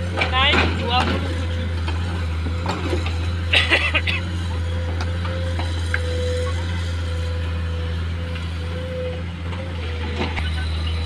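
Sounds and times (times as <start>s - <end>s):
excavator diesel engine working: 0.0s - 11.0s.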